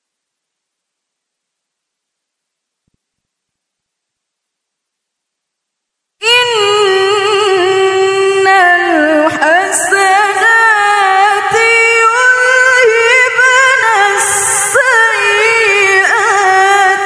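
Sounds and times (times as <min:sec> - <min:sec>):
woman reciting melodically: 0:06.2 - 0:17.0.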